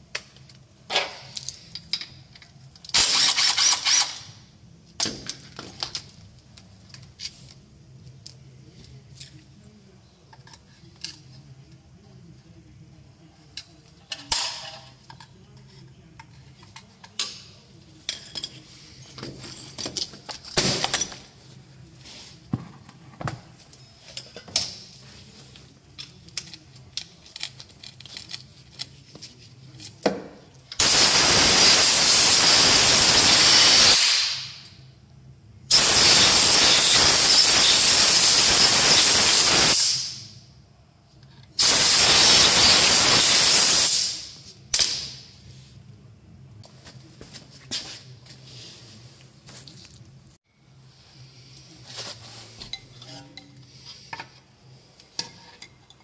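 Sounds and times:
aerosol spray hissing: 41.6s - 44.2s.

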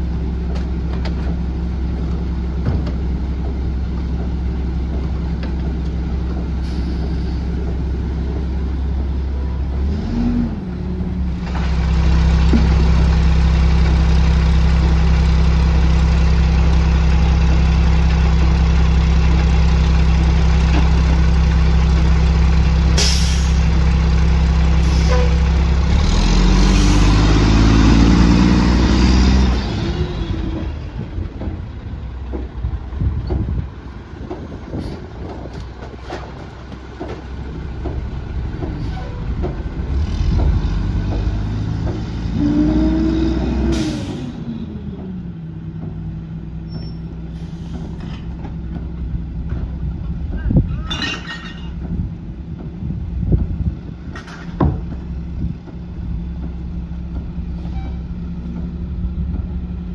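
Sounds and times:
garbage truck diesel engine: 0.0s - 59.9s
bins knocking and clanking: 2.1s - 6.6s
air brake hiss: 6.6s - 7.5s, 23.0s - 23.6s, 47.3s - 48.0s.

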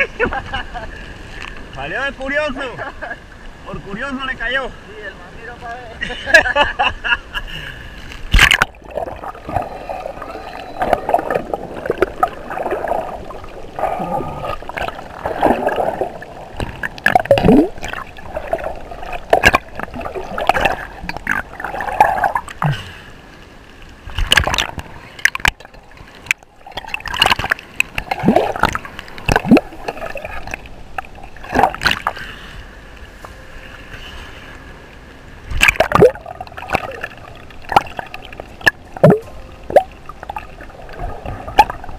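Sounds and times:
water gurgling and sloshing: 7.7s - 41.9s.

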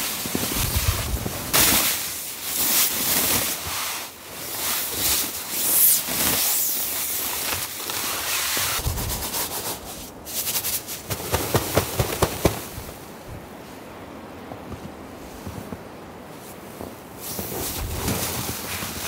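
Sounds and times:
snow sliding off tent tarp: 0.0s - 13.1s, 14.7s - 19.0s.

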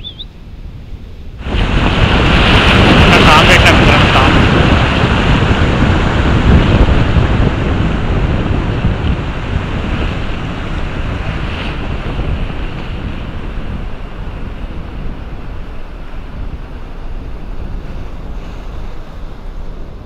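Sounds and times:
sea surf washing ashore: 0.0s - 20.0s
wind on microphone: 0.0s - 20.0s.

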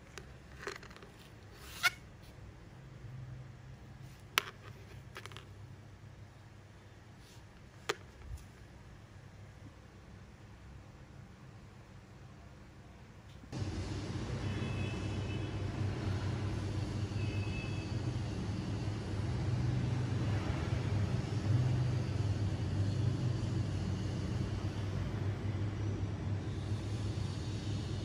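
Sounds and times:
motor traffic rumble: 13.5s - 28.0s.

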